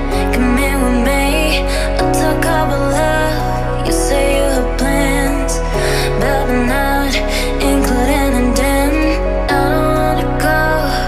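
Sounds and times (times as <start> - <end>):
background music with bass: 0.0 - 11.0.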